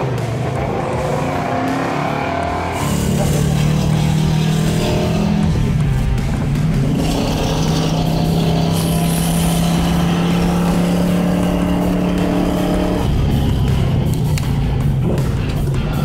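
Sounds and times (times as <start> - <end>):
car engine pulling at steady revs: 0.0 - 16.0.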